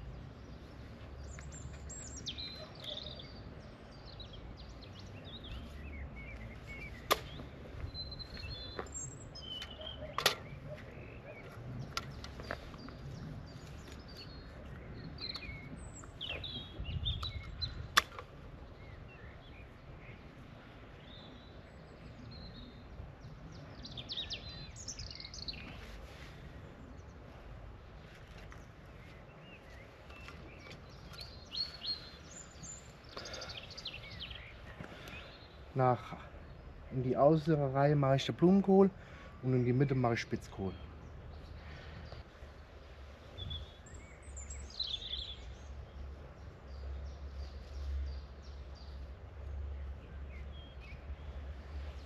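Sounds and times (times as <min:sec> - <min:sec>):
songbirds chirping and singing: 0:00.0 - 0:52.0.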